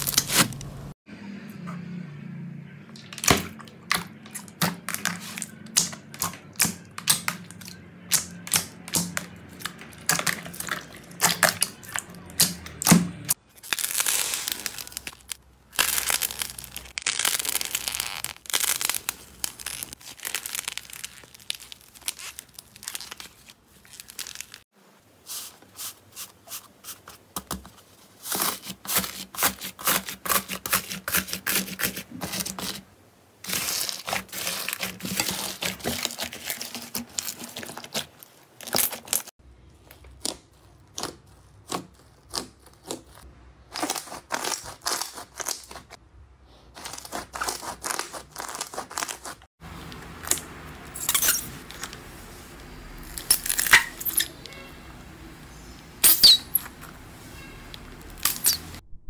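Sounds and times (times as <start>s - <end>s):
sticky popping and crackling: 3.2s - 24.7s, 33.4s - 46.0s
foam-bead slime crunching: 13.4s - 26.3s, 33.4s - 46.0s, 46.7s - 52.0s
hands squeezing slime and clay: 13.5s - 24.7s, 33.4s - 46.0s.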